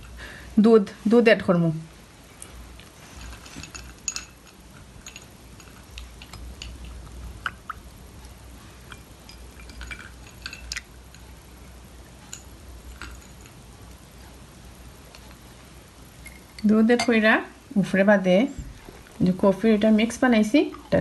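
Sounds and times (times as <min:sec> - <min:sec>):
ice clinking against glass: 0:09.3 - 0:10.9.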